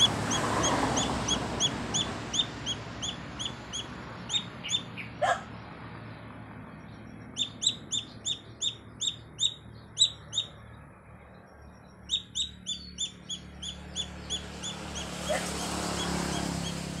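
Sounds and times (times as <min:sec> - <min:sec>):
chick peeping loudly: 0:00.0 - 0:05.1, 0:07.3 - 0:10.6, 0:12.0 - 0:17.0.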